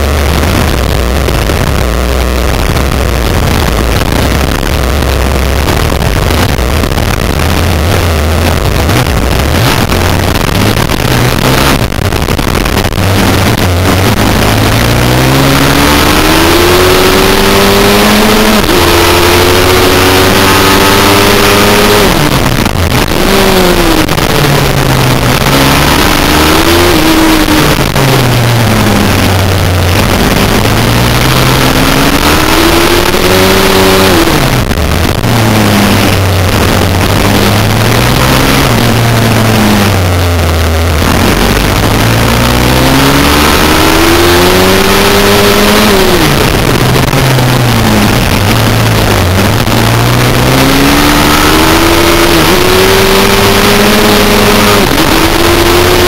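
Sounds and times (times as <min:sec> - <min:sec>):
wind rumble on microphone: 0:00.0 - 0:50.4
motorbike engine revving: 0:00.0 - 0:56.0.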